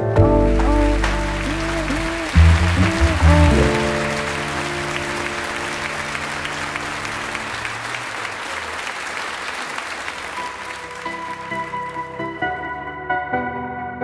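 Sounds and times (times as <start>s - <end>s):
background music chord: 0.0s - 7.6s
new tune: 0.0s - 8.6s, 9.2s - 13.6s
clapping-like crackle: 0.5s - 12.6s.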